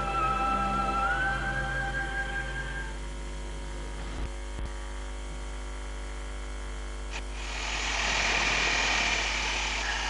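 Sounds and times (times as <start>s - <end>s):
low steady hum: 0.0s - 10.0s
angle grinder cutting metal: 7.2s - 10.0s.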